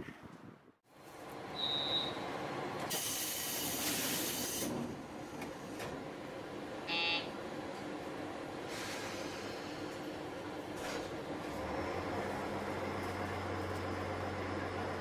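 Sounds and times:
air hiss: 0:02.9 - 0:04.7.

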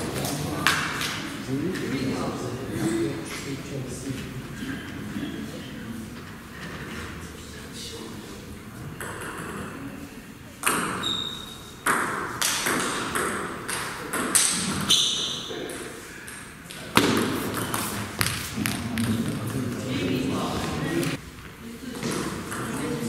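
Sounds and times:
table tennis ball hits: 0:10.6 - 0:11.1, 0:11.8 - 0:19.4.

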